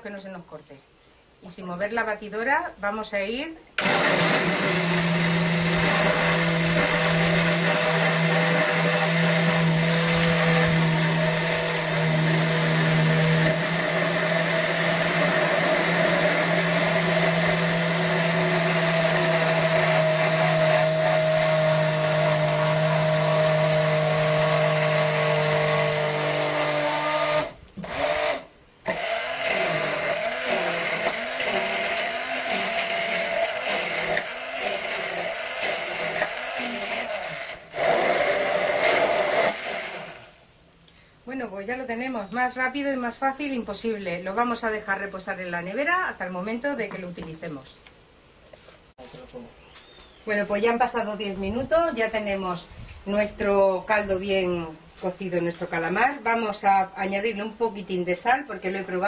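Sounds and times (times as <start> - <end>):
hand blender running: 3.8 - 40.3.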